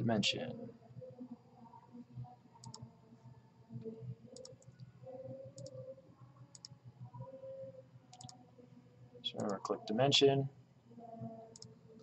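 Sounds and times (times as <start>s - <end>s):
faint steady hum: 0.0s - 12.0s
computer mouse clicking: 2.6s - 2.9s, 4.3s - 4.9s, 5.6s - 5.8s, 6.5s - 6.8s, 8.1s - 8.4s, 9.4s - 9.6s, 11.5s - 11.7s.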